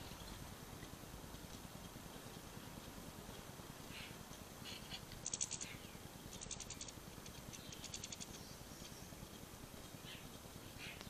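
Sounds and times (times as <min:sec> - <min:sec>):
finches twittering: 0:03.3 - 0:11.0.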